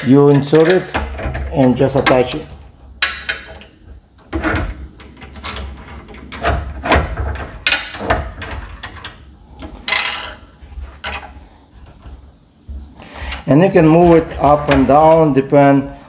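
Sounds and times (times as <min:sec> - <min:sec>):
metal knocks and scrapes: 0:03.0 - 0:15.2.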